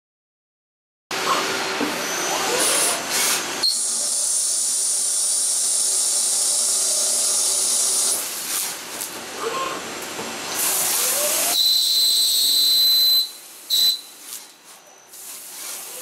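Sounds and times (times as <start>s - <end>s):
drill cutting whine: 2.1s - 8.2s, 10.8s - 14.0s.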